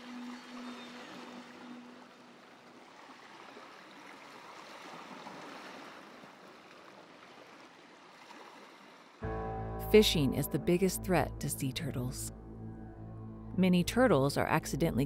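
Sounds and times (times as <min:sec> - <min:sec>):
sea surf on sandy beach: 0:00.0 - 0:09.2.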